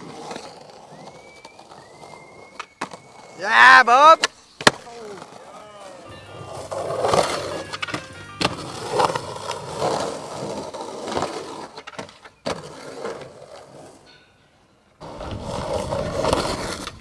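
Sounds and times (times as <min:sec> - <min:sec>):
skateboard wheels rolling on concrete: 0:00.0 - 0:17.0
skateboard clacks: 0:04.0 - 0:14.0.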